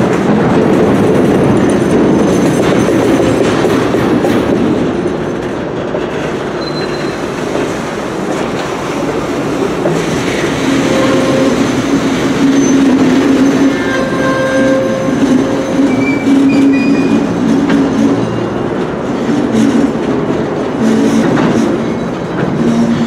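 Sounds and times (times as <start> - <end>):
train wheels rumbling on rails: 0.0 - 23.0
faint wheel squeal: 6.6 - 7.2.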